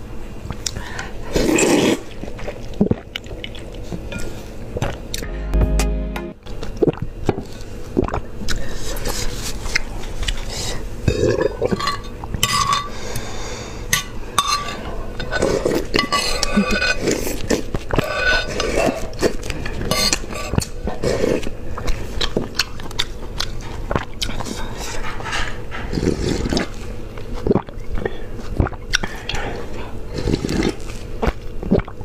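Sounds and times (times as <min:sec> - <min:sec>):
slurping soup and noodles: 0:01.2 - 0:05.0, 0:15.2 - 0:22.6, 0:23.9 - 0:32.0.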